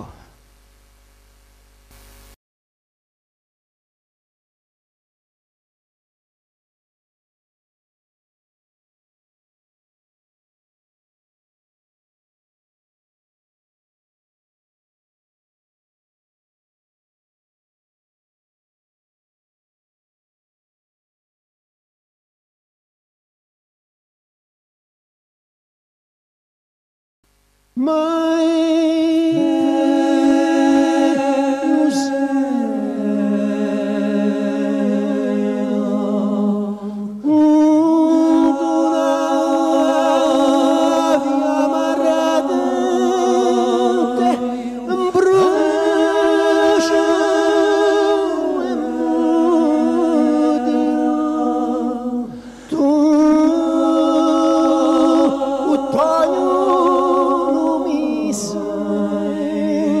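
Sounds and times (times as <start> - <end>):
voices singing in harmony: 27.8 - 60.0.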